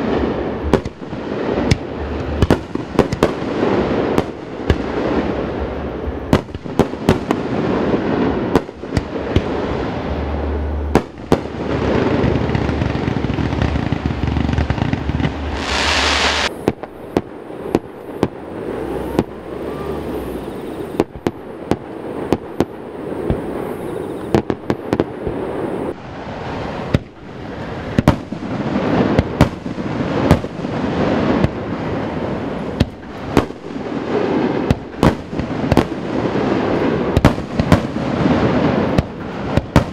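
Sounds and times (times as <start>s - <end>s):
high hiss: 0.0s - 39.6s
fireworks crackling: 0.0s - 39.9s
firework shell bursts: 15.0s - 19.9s.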